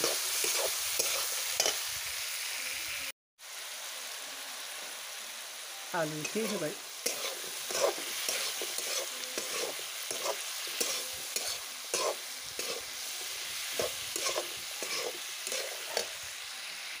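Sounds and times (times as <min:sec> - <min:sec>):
frying oil sizzling: 0:00.0 - 0:17.0
metal spatula scraping pan: 0:06.2 - 0:16.2.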